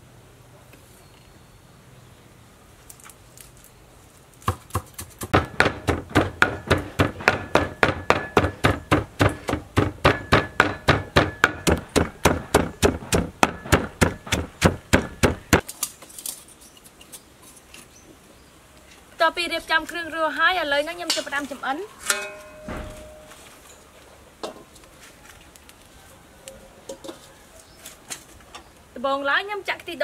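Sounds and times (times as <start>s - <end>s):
pestle pounding in mortar: 4.4s - 15.6s.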